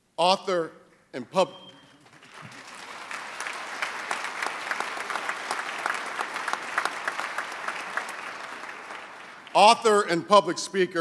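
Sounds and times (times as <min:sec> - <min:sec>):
audience applauding: 0:02.0 - 0:09.9.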